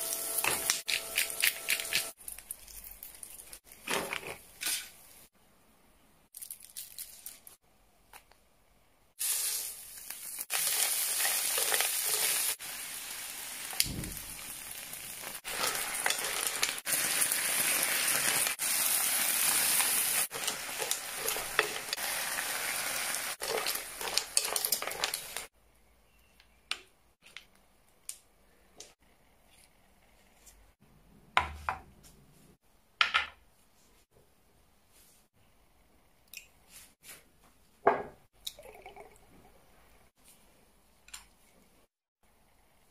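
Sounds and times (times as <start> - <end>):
seafood sizzling in a pan: 9.2 - 25.5.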